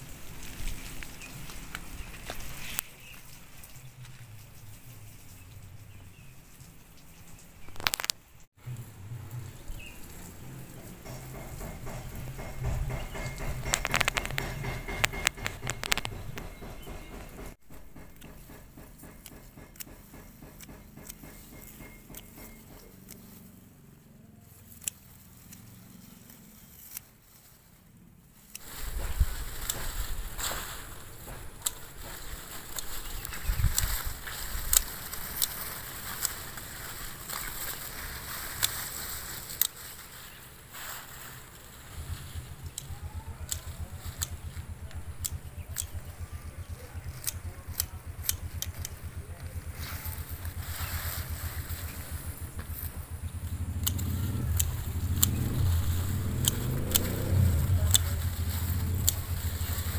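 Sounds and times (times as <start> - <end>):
small engine puttering: 8.6 - 59.9
pruning shears snipping stems: 10.7 - 23.4, 24.5 - 27.2, 28.5 - 59.9.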